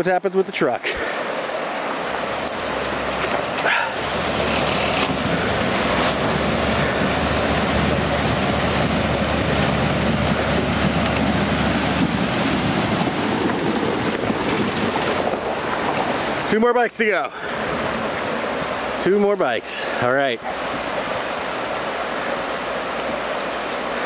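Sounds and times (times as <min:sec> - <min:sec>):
water rushing and splashing: 0:00.0 - 0:24.0
low engine hum: 0:01.8 - 0:16.5, 0:17.4 - 0:19.0.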